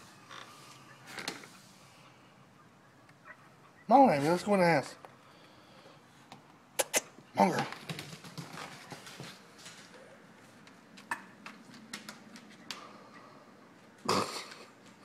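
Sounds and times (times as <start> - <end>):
dog scuffle: 7.5 - 10.6.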